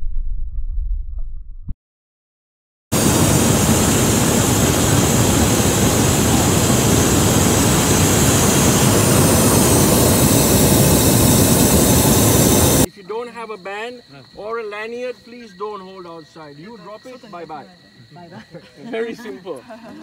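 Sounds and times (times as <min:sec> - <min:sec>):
propane burner roaring: 0:03.0 - 0:12.9.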